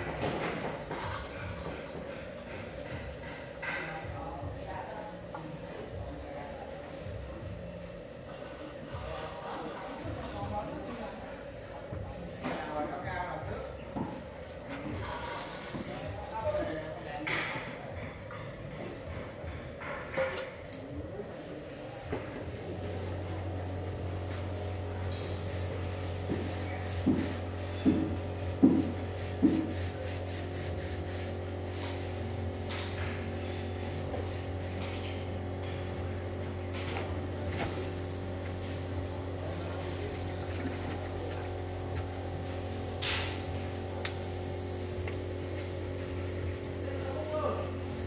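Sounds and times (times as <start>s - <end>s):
low machine hum: 20.6s - 48.0s.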